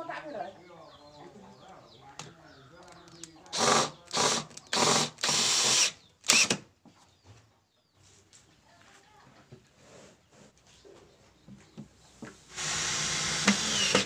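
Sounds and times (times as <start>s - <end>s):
cordless drill boring into wood: 3.4s - 6.6s, 12.5s - 14.0s.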